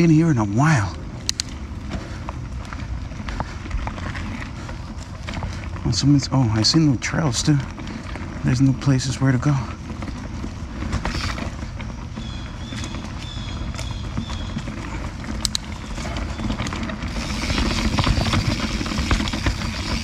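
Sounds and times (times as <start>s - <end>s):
bike rattling and knocking: 0.0s - 20.0s
bike tyres crunching on dirt: 0.0s - 20.0s.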